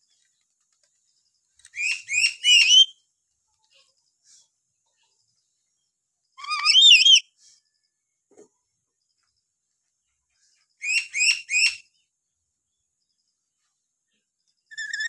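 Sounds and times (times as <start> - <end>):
parrot whistling: 6.4 - 7.2.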